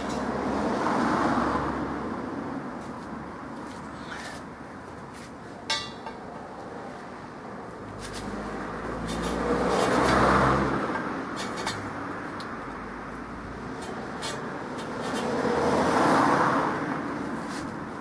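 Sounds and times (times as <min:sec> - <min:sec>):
vehicle passing: 0:07.9 - 0:17.6.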